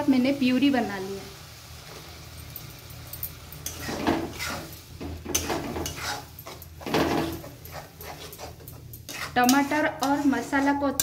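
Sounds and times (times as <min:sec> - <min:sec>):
spatula scraping thick sauce: 0:03.7 - 0:11.0.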